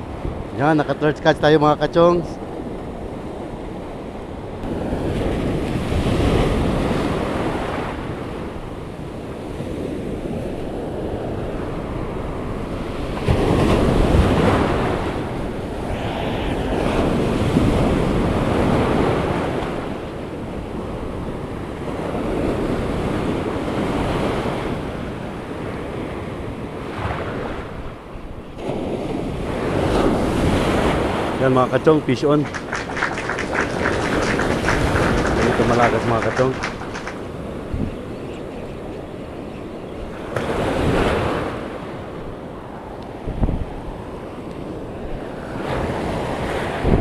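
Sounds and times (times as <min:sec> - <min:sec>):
surf breaking on beach: 0:29.6 - 0:37.6
wind buffeting microphone: 0:31.6 - 0:40.2.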